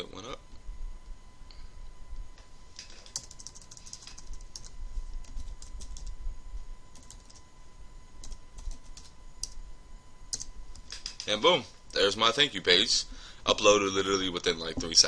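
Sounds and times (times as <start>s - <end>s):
keyboard typing: 2.8s - 6.1s, 6.9s - 7.4s, 8.2s - 9.6s, 10.3s - 11.3s.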